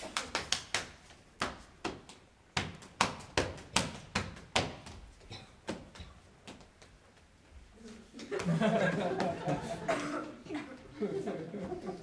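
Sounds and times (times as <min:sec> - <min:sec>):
dancer's shoes tapping and stamping: 0:00.0 - 0:07.7.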